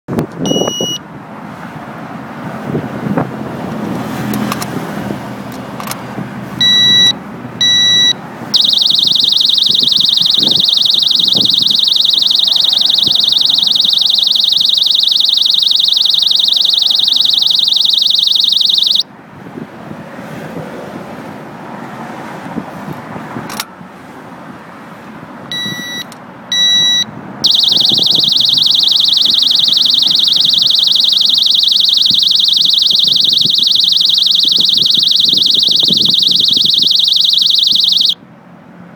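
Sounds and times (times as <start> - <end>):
short warning beeps: 0.5 - 1.0, 6.6 - 19.0, 25.5 - 38.2
high-pitched continuous alarm: 6.6 - 19.1, 26.6 - 38.2.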